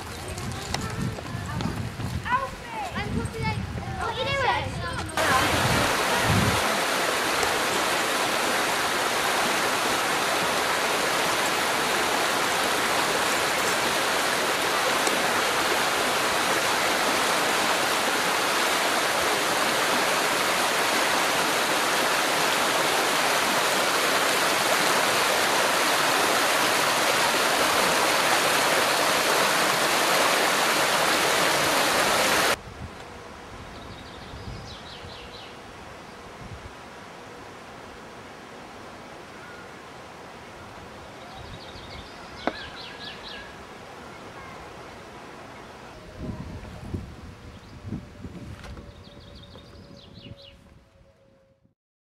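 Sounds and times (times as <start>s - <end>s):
rushing river water: 5.2s - 32.6s.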